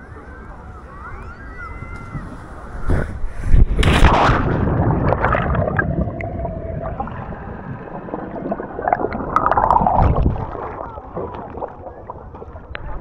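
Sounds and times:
underwater rush of air bubbles: 3.5s - 13.0s.

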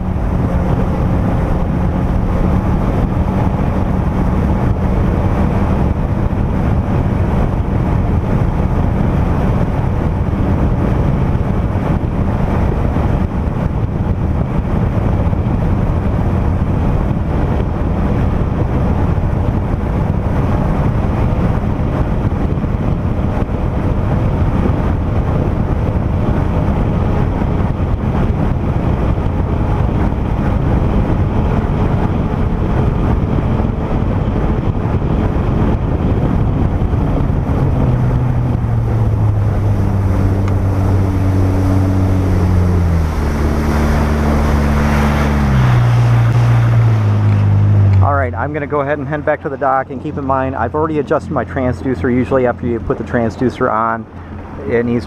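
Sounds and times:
jet ski engine drone: 0.0s - 55.0s
wind buffeting microphone: 0.0s - 55.0s
rushing water: 37.0s - 55.0s.

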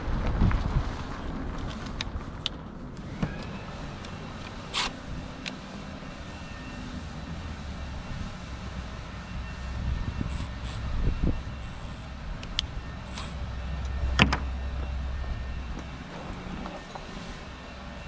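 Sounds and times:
low rumble: 0.0s - 18.0s
cordless drill whining: 3.0s - 6.9s, 9.4s - 17.7s.

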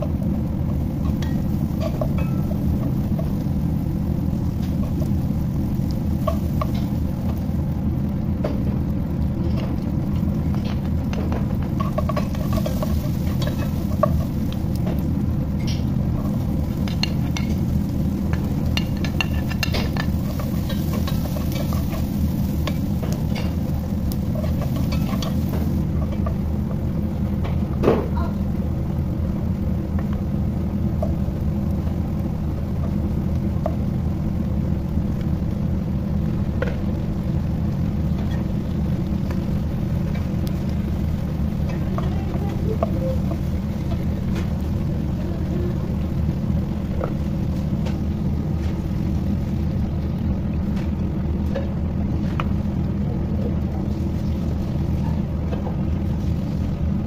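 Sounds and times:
low rumble: 0.0s - 27.8s
onion sizzling in a pot: 0.0s - 57.0s.

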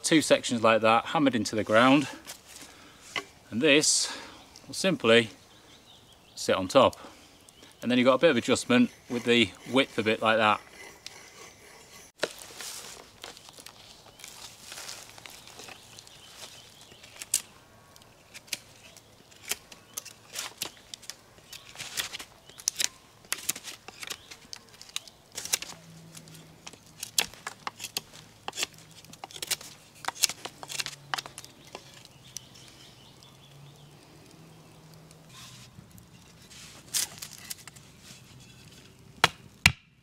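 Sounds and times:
knife whittling wood: 7.9s - 13.0s, 26.6s - 32.2s.

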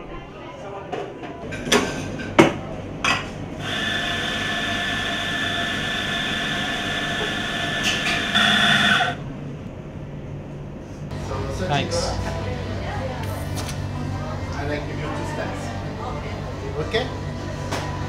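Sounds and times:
coffee grinder whining: 3.6s - 9.2s.

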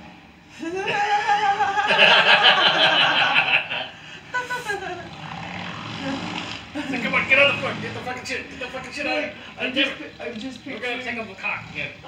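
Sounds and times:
people laughing loudly: 0.6s - 5.0s, 6.8s - 7.6s.

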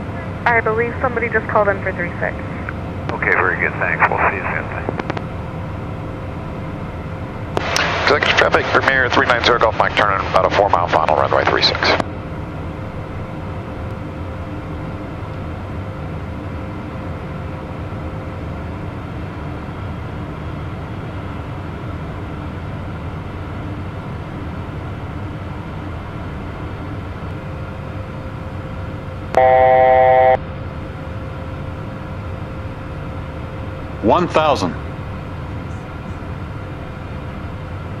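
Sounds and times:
jet engines and airflow: 0.0s - 38.0s
electronic alert tone: 29.4s - 30.4s.

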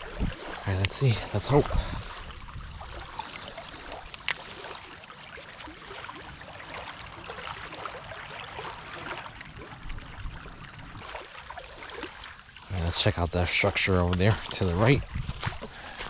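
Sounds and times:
wind rumbling on microphone: 0.0s - 4.2s, 8.8s - 11.4s, 12.8s - 16.0s
small waves lapping: 0.0s - 16.0s.

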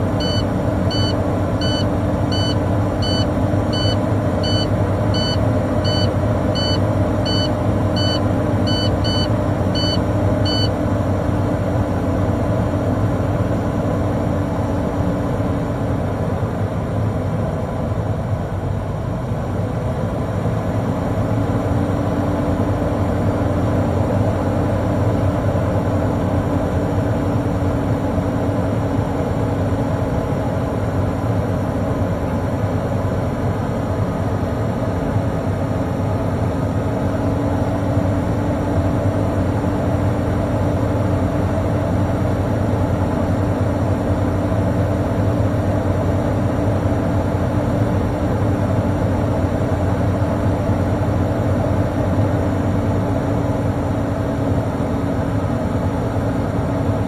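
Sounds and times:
warning buzzer beeping rapidly: 0.2s - 10.7s.

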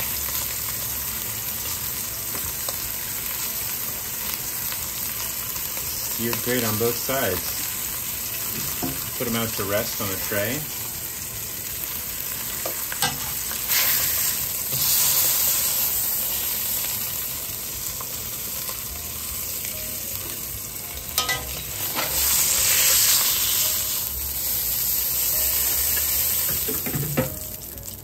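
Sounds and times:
meat sizzling in a pan: 0.0s - 28.0s
metal tongs clicking on pan: 21.2s - 21.6s.

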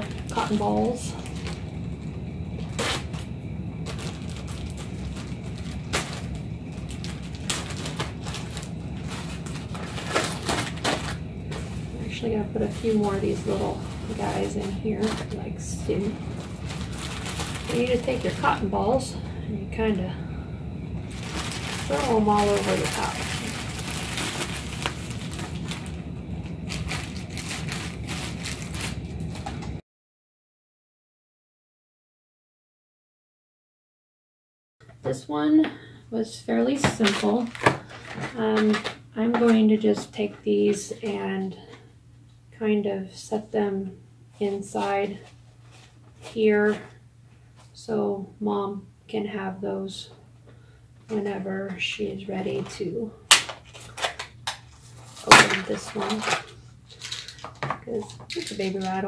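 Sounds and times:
plastic package crinkling: 0.0s - 18.8s, 21.0s - 29.8s, 36.8s - 39.5s, 53.3s - 59.0s
steady low hum: 0.0s - 29.8s, 34.8s - 59.0s.

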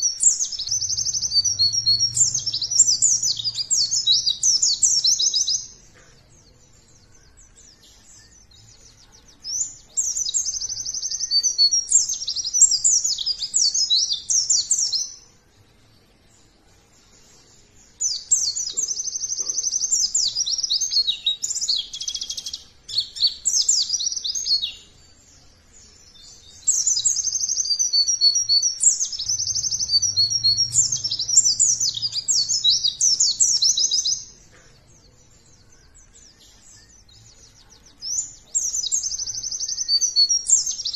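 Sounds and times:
bird twittering warbles and trills: 0.0s - 40.9s.

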